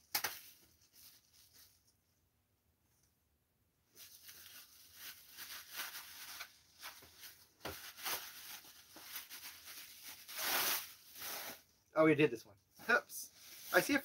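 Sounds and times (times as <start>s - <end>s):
bubble wrap crinkling: 0.0s - 2.0s, 3.9s - 11.7s, 13.3s - 14.0s.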